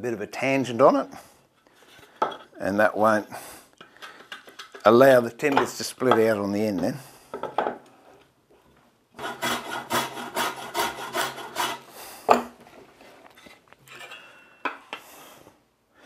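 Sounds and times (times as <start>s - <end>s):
hand plane strokes on wood: 9.2s - 11.9s.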